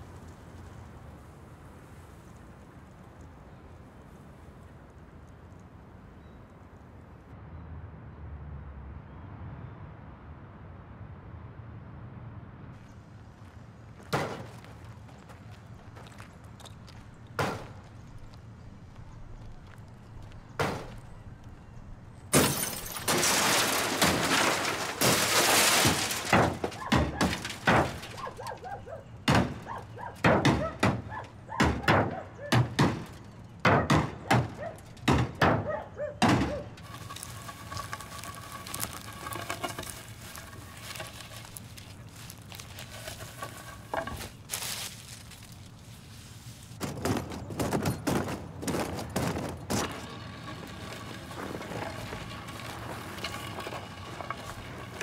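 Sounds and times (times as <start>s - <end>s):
glass smashing: 22.3s - 28.6s.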